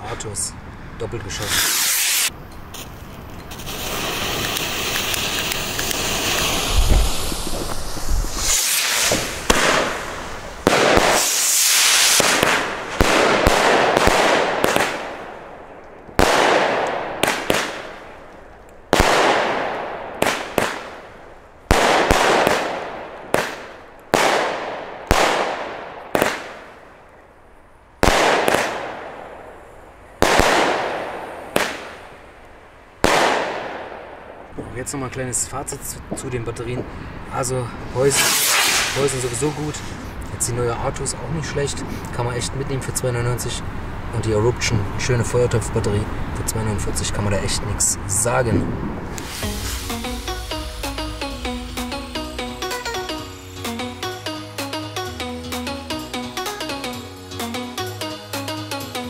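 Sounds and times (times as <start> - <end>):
firework launch bangs: 1.4 - 15.4, 16.2 - 18.1, 18.9 - 21.1, 21.7 - 26.8, 28.0 - 29.5, 30.2 - 32.1, 33.0 - 34.4, 37.9 - 40.1, 48.9 - 53.8.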